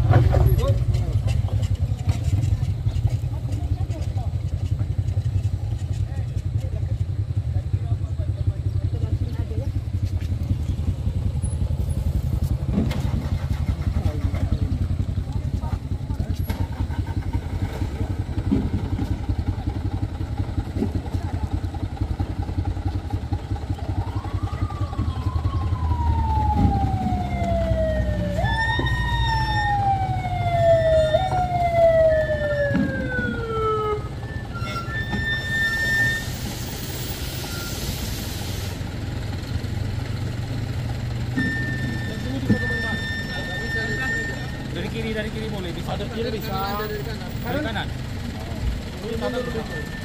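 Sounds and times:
vehicle engines rumbling: 0.0 - 50.0
hiss: 36.2 - 38.8.

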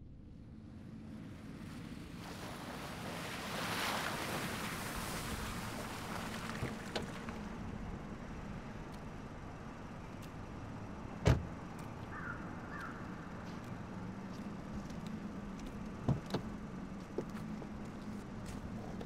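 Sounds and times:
low background hum: 0.0 - 19.0
car door slamming shut: 11.2 - 11.5.

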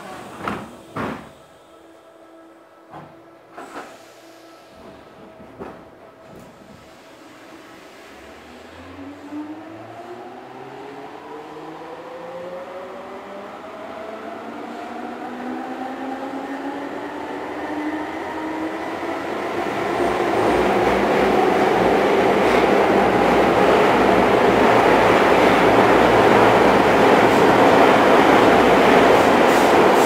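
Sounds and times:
train wheel and running noise: 19.5 - 30.0.

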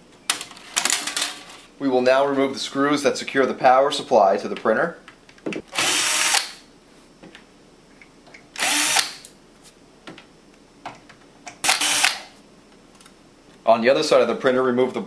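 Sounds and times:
power screwdriver running: 5.8 - 6.6, 8.6 - 9.2, 11.6 - 12.3.

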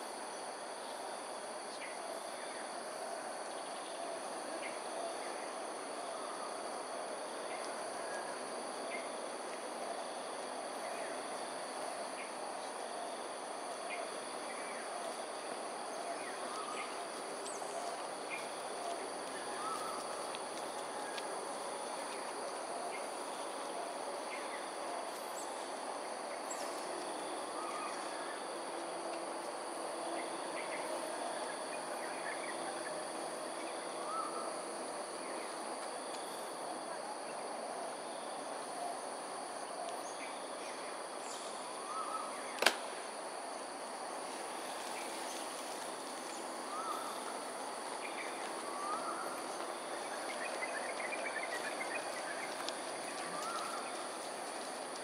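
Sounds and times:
low background hum: 0.0 - 55.0
sharp click: 42.6 - 42.9.

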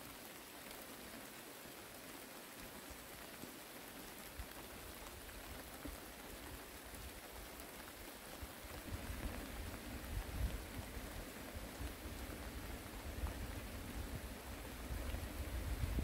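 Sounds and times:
light rain falling: 0.0 - 16.0
low rumbling gusts: 8.8 - 16.0.

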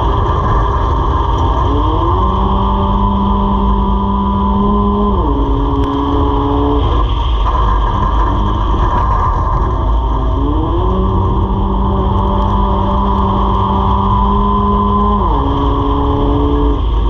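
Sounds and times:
race car engine: 0.0 - 17.0.

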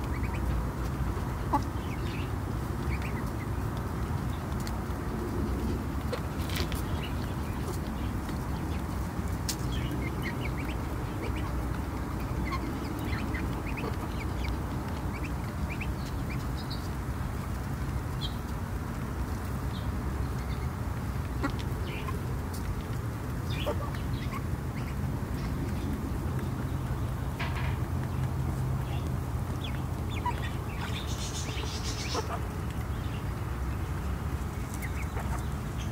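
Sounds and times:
hens clucking softly: 0.0 - 2.2, 29.0 - 32.9, 34.4 - 35.9
duckling peeping: 0.0 - 4.8, 5.6 - 17.0, 20.3 - 22.4, 23.3 - 25.1, 28.8 - 35.9
low background noise: 0.0 - 35.9
rustle: 0.0 - 35.9.

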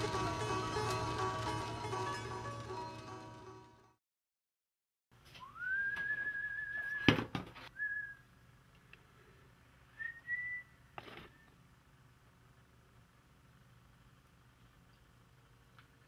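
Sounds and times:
person whistling: 5.4 - 7.2, 7.8 - 8.2, 10.0 - 11.5.

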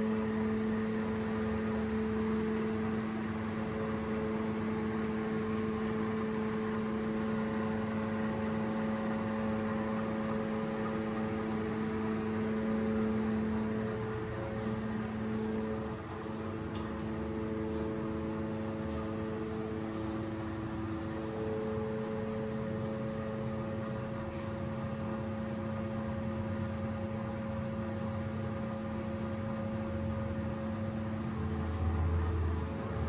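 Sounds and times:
ventilation fans humming: 0.0 - 33.0.

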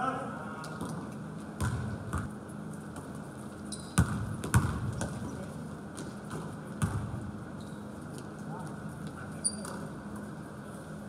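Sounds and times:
noise of play in gym: 0.0 - 11.0
basketball bouncing on gym floor: 1.6 - 2.4, 3.8 - 7.3.

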